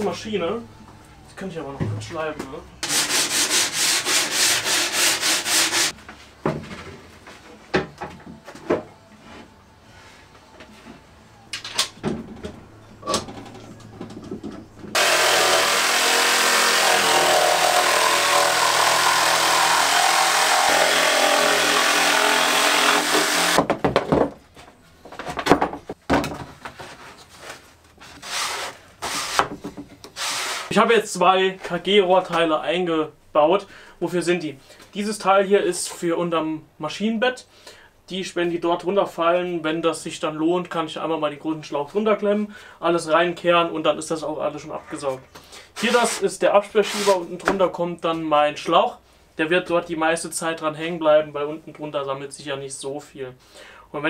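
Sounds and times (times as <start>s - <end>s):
sanding wooden board: 2.8s - 5.9s, 15.0s - 23.6s, 28.2s - 29.4s, 30.2s - 30.7s
boards and tools clattering: 12.0s - 30.7s
electric jigsaw cutting: 15.0s - 23.6s.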